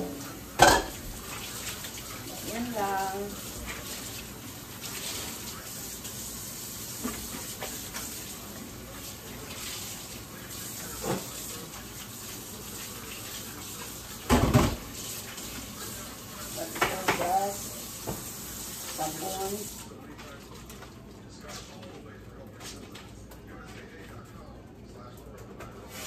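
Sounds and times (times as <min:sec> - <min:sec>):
dish clunk: 0:00.6 - 0:01.0
dishes knocking: 0:00.6 - 0:01.0
faucet running into steel sink: 0:00.8 - 0:19.8.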